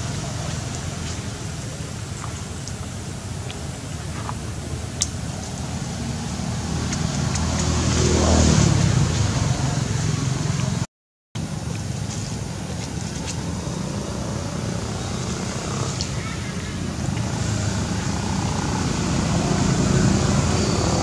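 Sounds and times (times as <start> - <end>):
vehicle engine passing by: 5.2 - 10.8, 12.5 - 21.0.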